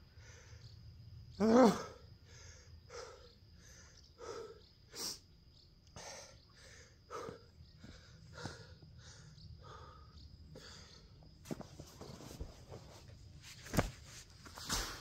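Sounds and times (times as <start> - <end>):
man breathing hard: 0.0 - 0.9, 1.8 - 5.3, 5.9 - 11.3.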